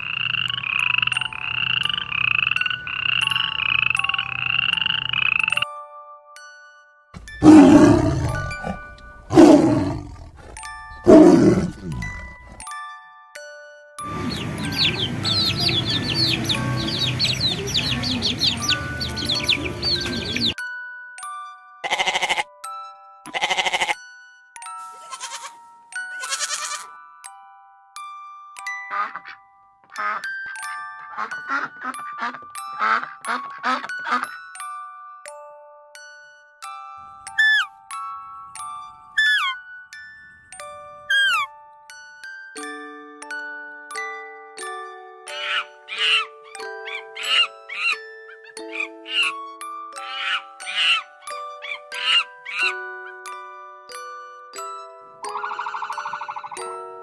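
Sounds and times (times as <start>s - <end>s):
frog-like croaks: 0.0s - 5.6s, 55.3s - 56.7s
chiming bell-like music: 1.0s - 57.0s
tiger roaring: 7.4s - 12.6s
goat bleating: 21.8s - 22.4s, 23.3s - 24.0s, 25.0s - 25.6s, 26.2s - 26.9s.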